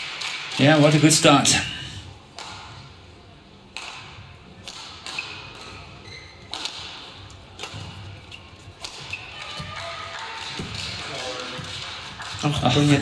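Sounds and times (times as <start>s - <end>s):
rackets hitting shuttlecock: 2.3s - 3.0s, 3.7s - 12.9s.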